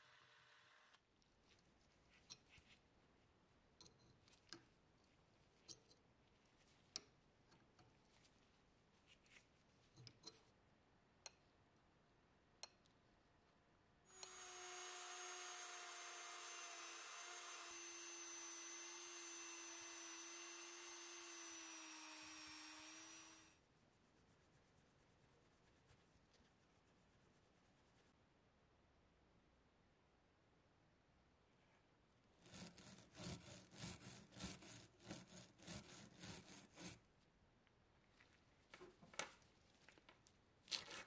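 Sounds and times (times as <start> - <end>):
small power tool whining: 14.1 - 23.6.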